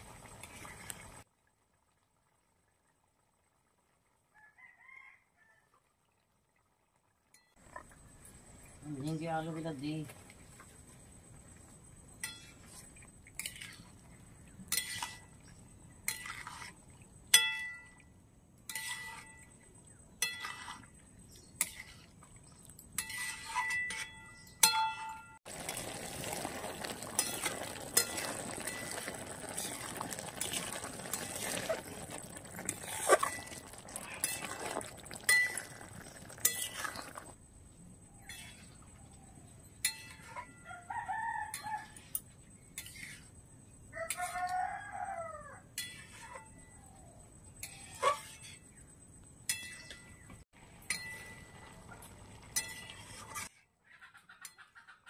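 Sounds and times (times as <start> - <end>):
rooster crowing: 4.3 - 5.7, 40.6 - 42.0, 43.9 - 45.7
curry frying hiss: 25.5 - 37.4.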